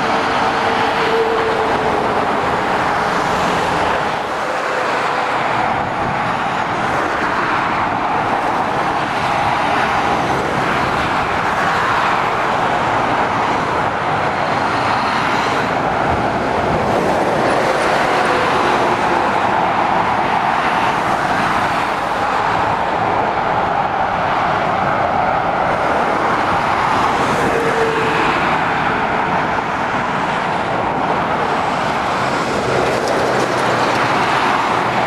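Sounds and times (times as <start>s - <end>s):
road traffic passing: 0.0s - 35.0s.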